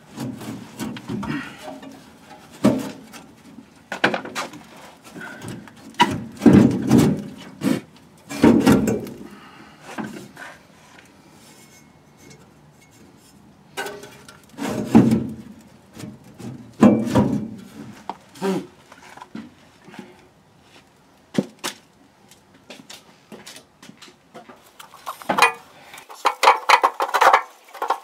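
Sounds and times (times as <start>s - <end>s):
fuel tank scraping against chassis: 9.9s - 18.1s.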